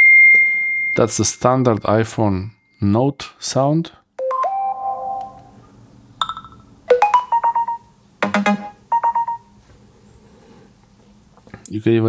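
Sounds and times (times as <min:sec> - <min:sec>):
phone alert chimes: 0:04.2 - 0:05.4, 0:06.3 - 0:09.5.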